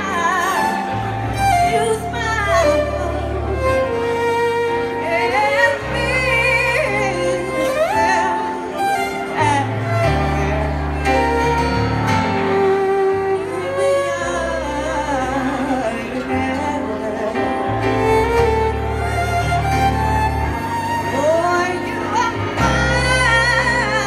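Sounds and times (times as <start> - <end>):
woman singing: 0.0 - 4.0, 5.0 - 10.6, 13.5 - 17.7, 21.1 - 24.0
keyboard: 0.0 - 24.0
violin: 0.0 - 24.0.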